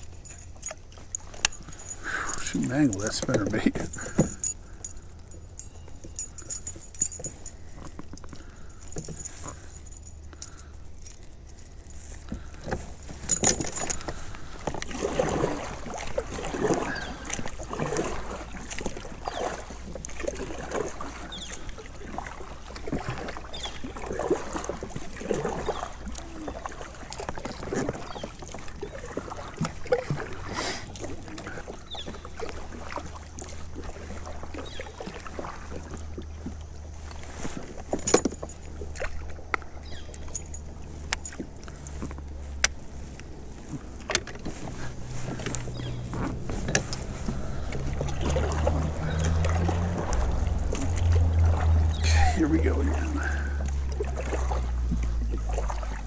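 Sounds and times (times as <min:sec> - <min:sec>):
small clicks and rattles: 0:00.0 - 0:14.9
water splashing against kayak hull: 0:00.0 - 0:56.0.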